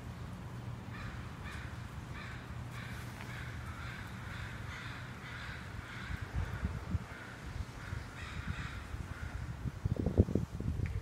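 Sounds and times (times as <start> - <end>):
crow cawing: 0.9 - 9.6.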